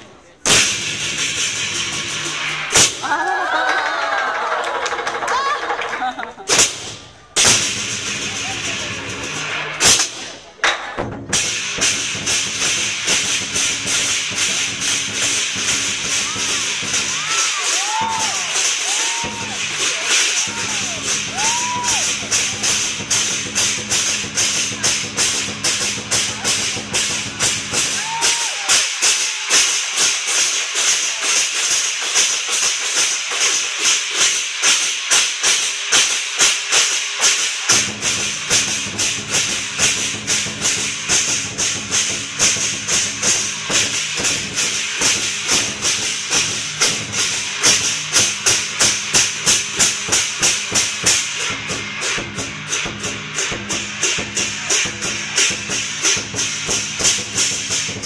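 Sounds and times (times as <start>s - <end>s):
clashing cymbals: 0.4s - 3.2s, 6.5s - 10.6s, 11.2s - 58.0s
deep drum beat: 6.5s - 29.0s, 37.7s - 58.0s.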